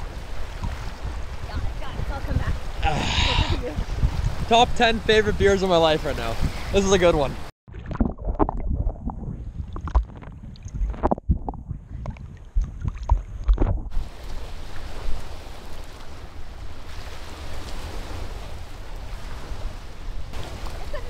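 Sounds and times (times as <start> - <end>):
waves on a rocky shore: 0.0 - 7.5, 14.0 - 21.0
water splashing and sloshing: 0.0 - 21.0
wind noise on microphone: 0.0 - 21.0.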